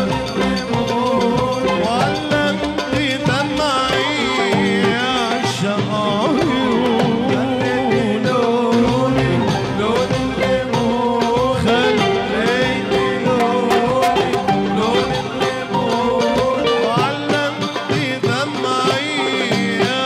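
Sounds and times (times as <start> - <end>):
instrumental band music: 0.0 - 20.0.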